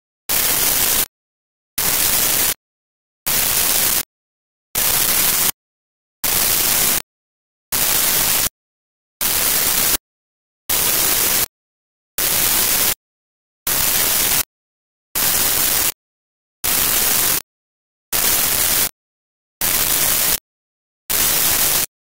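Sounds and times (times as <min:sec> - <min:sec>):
bursts of hissing static: 0:00.3 - 0:01.1, 0:01.8 - 0:02.6, 0:03.3 - 0:04.1, 0:04.8 - 0:05.6, 0:06.2 - 0:07.0, 0:07.7 - 0:08.6, 0:09.2 - 0:10.0, 0:10.7 - 0:11.5, 0:12.2 - 0:13.0, 0:15.2 - 0:16.0, 0:16.6 - 0:17.4, 0:18.2 - 0:19.0, 0:19.6 - 0:20.4, 0:21.2 - 0:21.9.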